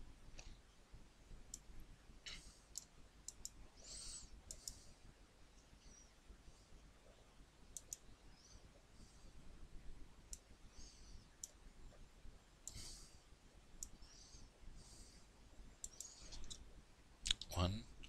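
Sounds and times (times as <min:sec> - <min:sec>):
computer mouse clicks: 0:02.3 - 0:03.6, 0:04.5 - 0:04.8, 0:07.7 - 0:08.0, 0:15.8 - 0:16.6.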